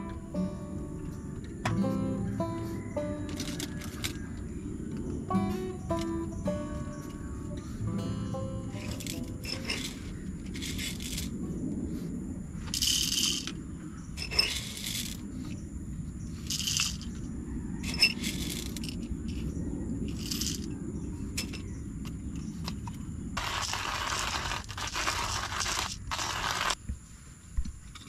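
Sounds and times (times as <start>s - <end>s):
steady low rumble: 0.0s - 23.4s
coffee beans rattling: 3.3s - 4.2s, 8.8s - 11.4s, 12.7s - 13.6s, 14.2s - 15.2s, 16.4s - 17.2s, 17.9s - 19.4s, 20.1s - 20.8s, 23.4s - 26.8s.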